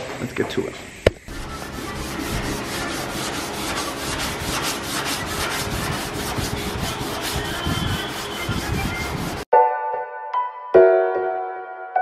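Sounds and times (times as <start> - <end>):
sandpaper scrubbing on fiberglass: 1.2 - 9.5.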